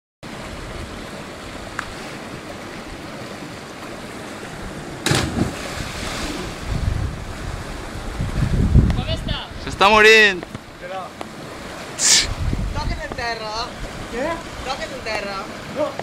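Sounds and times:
water churning: 0.2 - 8.8, 10.6 - 16.0
person jumping into water: 3.8 - 7.0
small waterfall rushing: 14.0 - 16.0.

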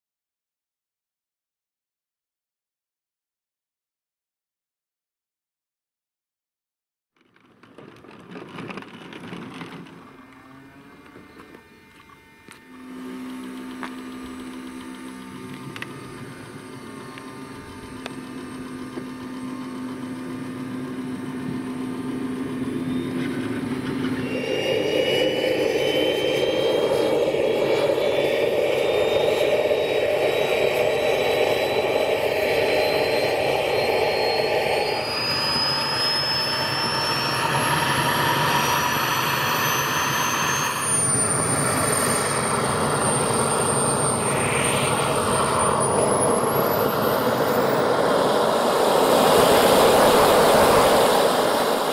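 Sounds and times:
jet turbine whine spooling up: 7.8 - 51.9.

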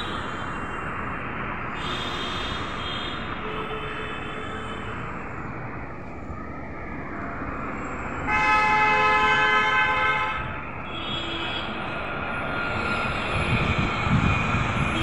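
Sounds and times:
city street traffic: 0.0 - 15.0
vehicle horn blast: 8.3 - 10.4.

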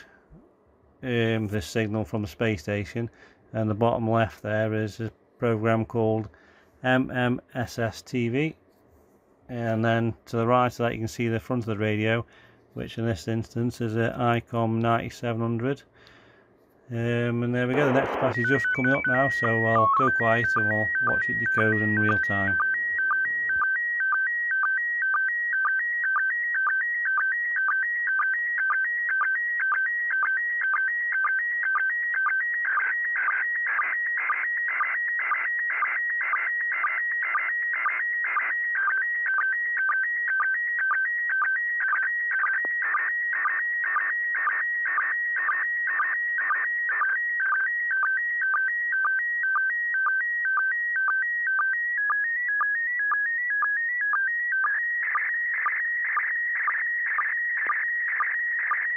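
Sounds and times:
warbling image signal tones: 17.3 - 23.6.

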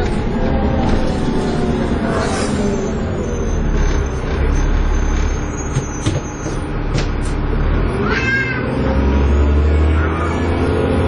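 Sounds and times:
bus engine drone with whine: 0.0 - 11.0
short squeal: 2.1 - 6.6.

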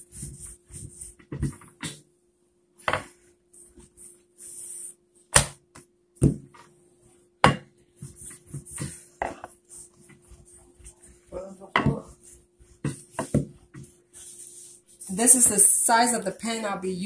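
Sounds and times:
rolling pin knocking on countertop: 7.4 - 7.7, 11.7 - 12.1, 12.8 - 13.8.

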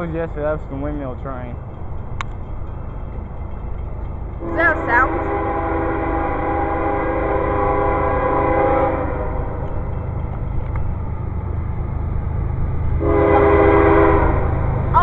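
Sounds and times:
low train rumble: 0.0 - 15.0
train air horn blasts: 4.4 - 9.6, 13.0 - 14.6.

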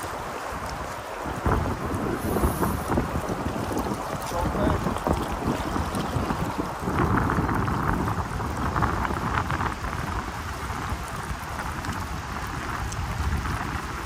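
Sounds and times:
fast-flowing river rushing: 0.0 - 14.0
wind rumbling on microphone: 0.0 - 14.0.

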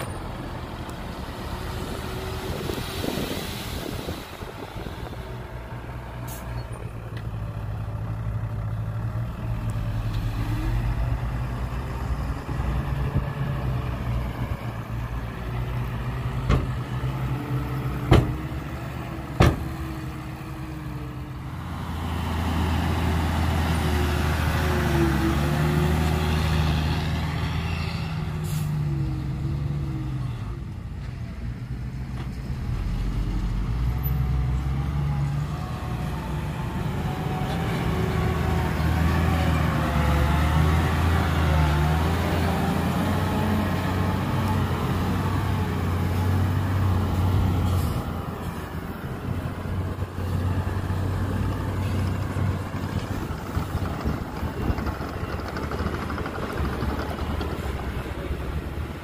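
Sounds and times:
diesel engine of heavy machinery: 0.0 - 59.0
sharp knocks: 18.1 - 18.4.

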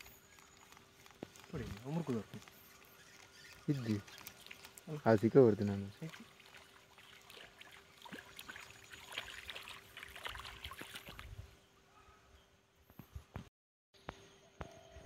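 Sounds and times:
water splashing and gurgling: 2.8 - 11.4.

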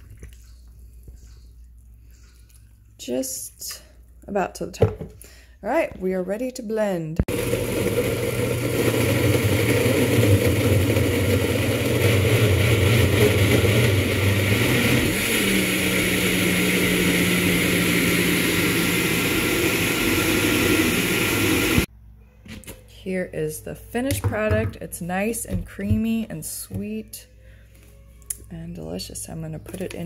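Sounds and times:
blender running: 7.3 - 21.9.

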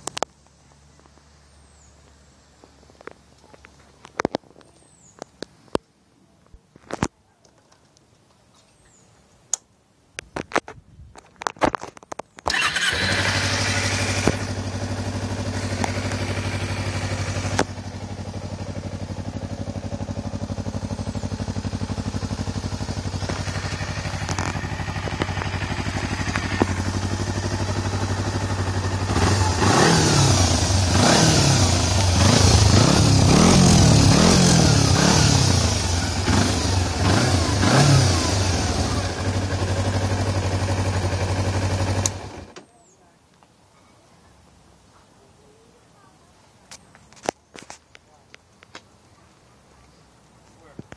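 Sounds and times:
motorcycle engine idling and revving: 12.0 - 42.7.

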